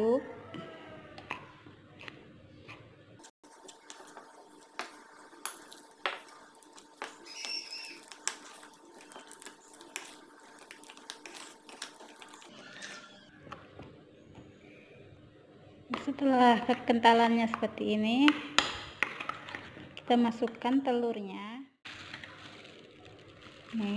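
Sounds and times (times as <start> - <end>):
spoon stirring thick batter: 0.5 - 12.6, 19.0 - 20.6.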